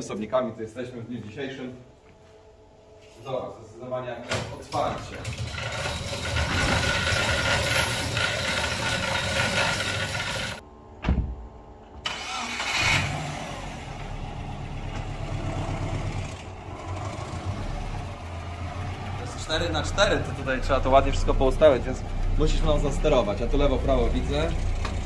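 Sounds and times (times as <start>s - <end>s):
garage door rattling open: 4.3s - 11.4s
car engine at low revs: 13.0s - 25.0s.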